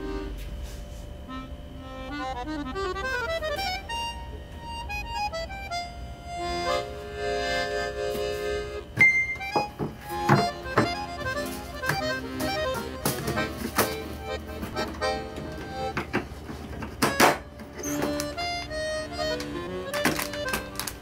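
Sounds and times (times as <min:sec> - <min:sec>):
jaunty accordion tune: 0:00.0 - 0:21.0
sharp knocks: 0:09.0 - 0:14.0, 0:15.9 - 0:18.2.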